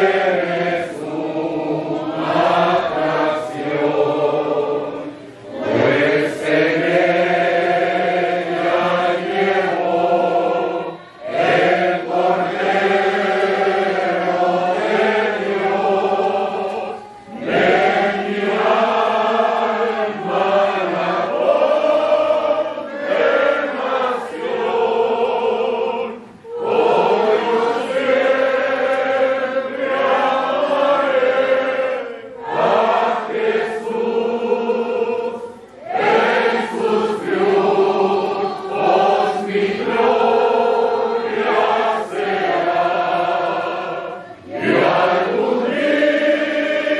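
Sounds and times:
congregation singing a hymn: 0.0s - 46.9s.

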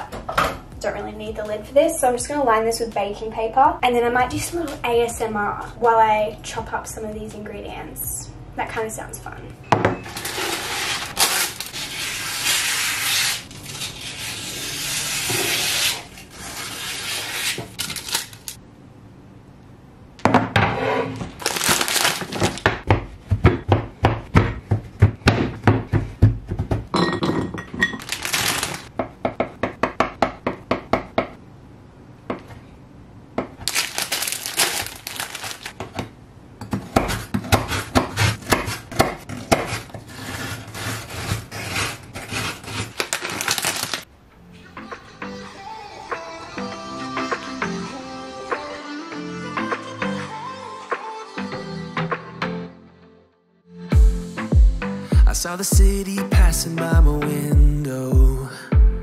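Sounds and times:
baking paper rustling and tearing: 10.1s - 18.6s, 21.2s - 22.7s, 28.0s - 28.9s, 33.6s - 35.8s, 37.2s - 44.1s
knife chopping chocolate on wood: 36.6s - 40.0s.

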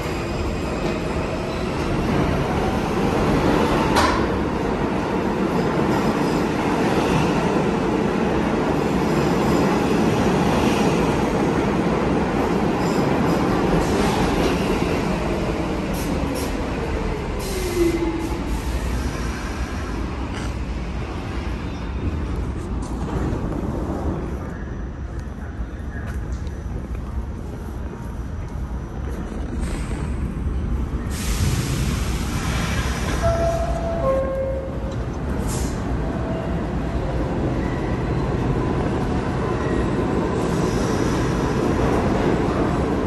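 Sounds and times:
subway train rumble: 0.0s - 43.0s.

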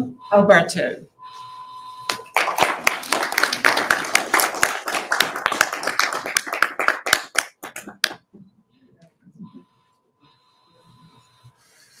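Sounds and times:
people clapping: 2.1s - 8.3s.

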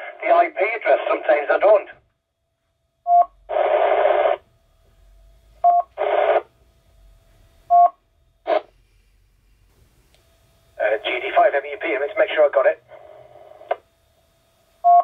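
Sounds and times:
radio static hiss: 0.0s - 2.0s, 3.5s - 4.5s, 5.9s - 6.5s, 8.4s - 8.8s, 10.7s - 13.8s.

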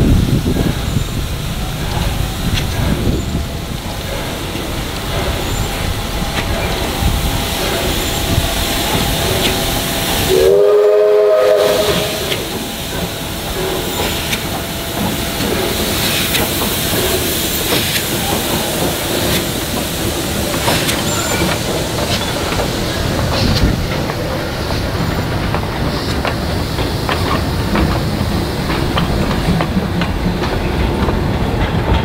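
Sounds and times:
steam hiss: 0.0s - 32.0s
steam locomotive whistle: 7.9s - 15.8s.

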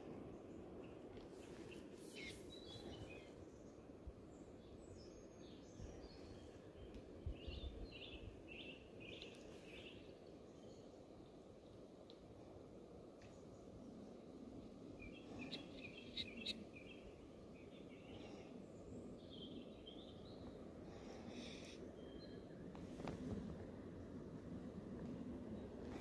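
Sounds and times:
bird chirping: 15.0s - 18.2s.

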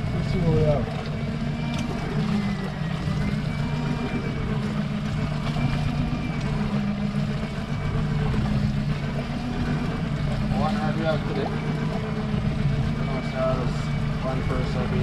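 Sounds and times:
motorboat engine running: 0.0s - 15.0s.

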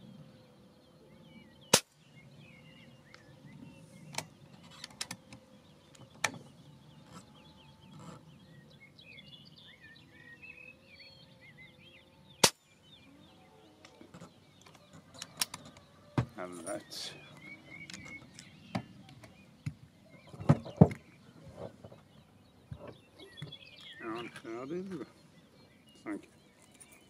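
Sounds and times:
birds chirping: 0.0s - 27.0s
air rifle shots: 12.4s - 12.6s.

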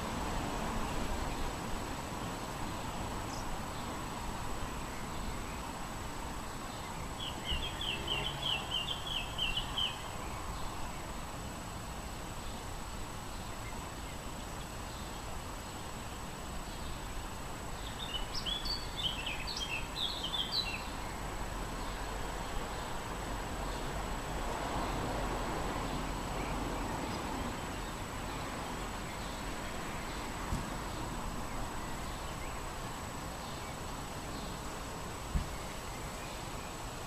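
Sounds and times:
songbirds singing: 0.0s - 37.0s
steady wind: 0.0s - 37.0s.

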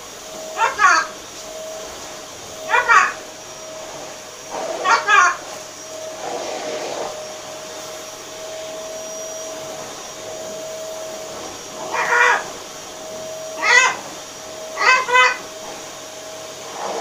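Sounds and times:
macaw talking: 0.6s - 1.1s, 2.7s - 3.2s, 4.8s - 5.4s, 11.9s - 12.6s, 13.6s - 14.0s, 14.8s - 15.5s.

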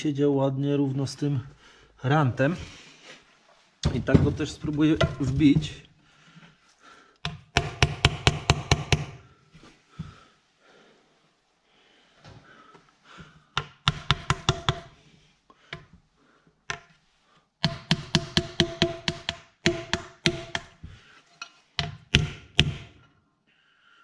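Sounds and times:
small hammer tapping metal: 7.2s - 9.2s, 13.6s - 14.9s, 17.6s - 20.8s, 21.4s - 22.9s.

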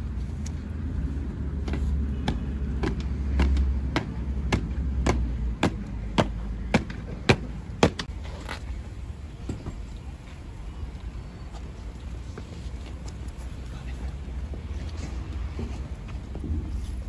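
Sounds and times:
boots marching on pavement: 0.0s - 8.6s.

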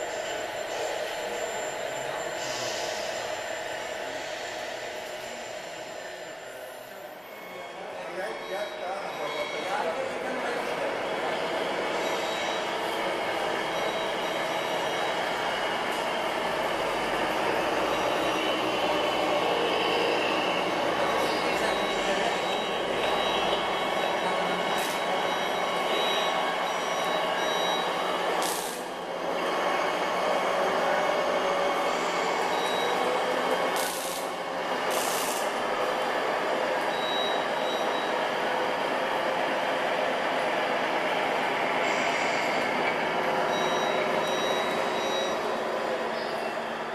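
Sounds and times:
air-brake hisses: 2.4s - 3.1s, 33.8s - 34.3s, 34.9s - 35.5s
simulated diesel engine sounds: 10.0s - 46.1s.

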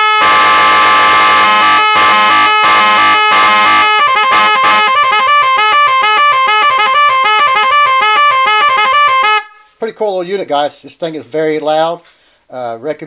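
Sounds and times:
electric horns playing melody: 0.0s - 9.6s.

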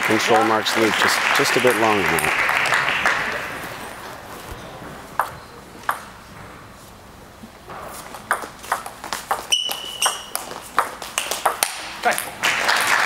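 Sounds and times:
short high squeaks: 9.5s - 10.5s.

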